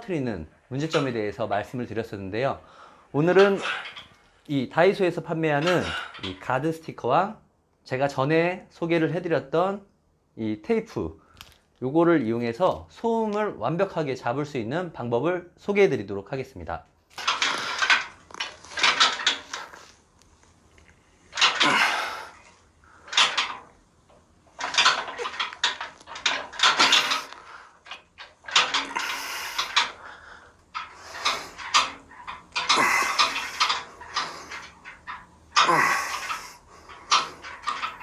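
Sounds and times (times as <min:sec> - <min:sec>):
metal attachment clanking and rattling: 0:00.0 - 0:02.5, 0:03.1 - 0:06.6, 0:17.1 - 0:20.0, 0:21.2 - 0:38.0.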